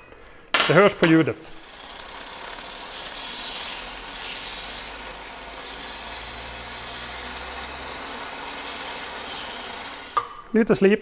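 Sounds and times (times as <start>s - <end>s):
motor hum: 1.4s - 10.3s
metal grinding on belt: 1.5s - 10.2s.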